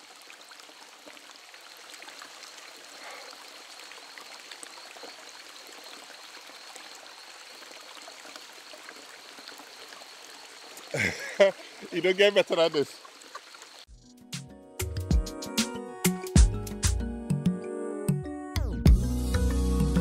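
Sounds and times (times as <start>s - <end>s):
water trickling onto rocks: 0.0s - 13.9s.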